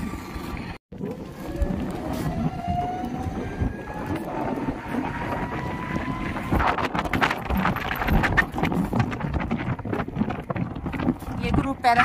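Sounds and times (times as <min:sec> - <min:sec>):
road traffic noise: 0:00.0 - 0:07.4
vehicle engine: 0:00.0 - 0:09.1
wind buffeting microphone: 0:00.0 - 0:12.0
sharp clicks and rattles: 0:06.3 - 0:12.0.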